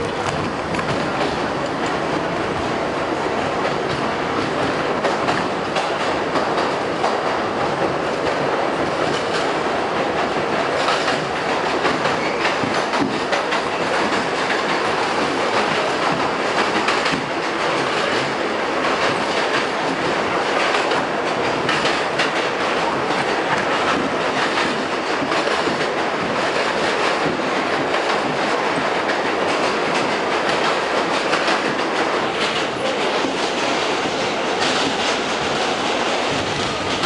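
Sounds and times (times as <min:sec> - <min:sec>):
train wheels rumbling on rail: 0:00.0 - 0:37.0.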